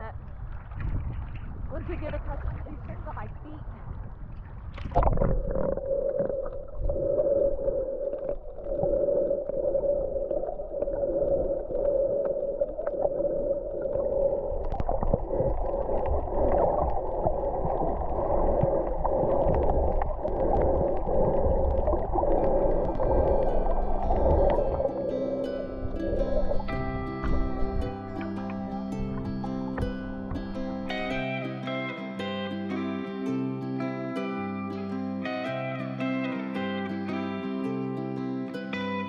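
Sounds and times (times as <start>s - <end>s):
underwater clicks and crackles: 0.2s - 3.3s, 4.1s - 31.2s
muffled underwater hum: 4.9s - 31.4s.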